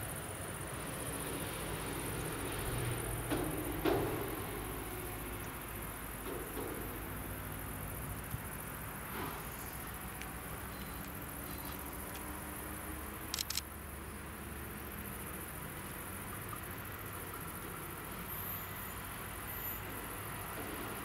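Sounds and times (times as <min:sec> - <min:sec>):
insects chirring: 0:00.0 - 0:21.0
sharp clicks: 0:13.3 - 0:13.7.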